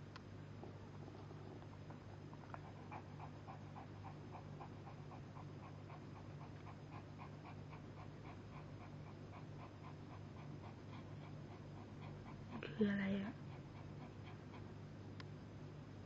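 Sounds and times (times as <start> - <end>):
low steady hum: 0.0 - 16.0
dog panting: 1.0 - 14.9.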